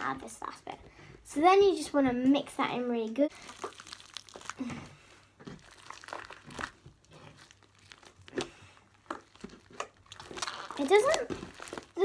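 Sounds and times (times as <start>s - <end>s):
slime squeezed by hand crackling: 3.3s - 12.0s.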